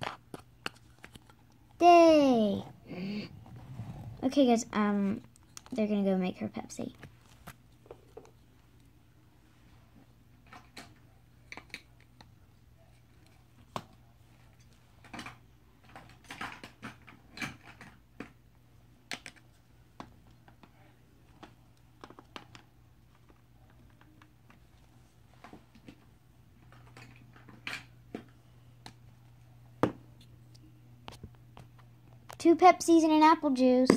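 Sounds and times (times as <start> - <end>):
faint low hum: 0.0 - 33.9.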